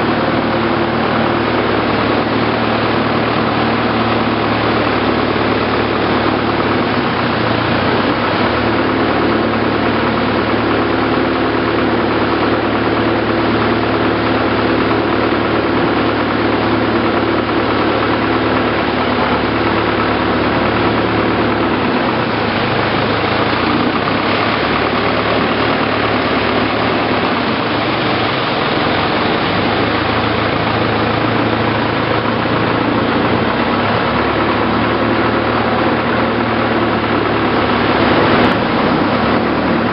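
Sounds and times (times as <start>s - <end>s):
boat engine running: 0.0s - 39.9s
water rushing: 0.0s - 39.9s.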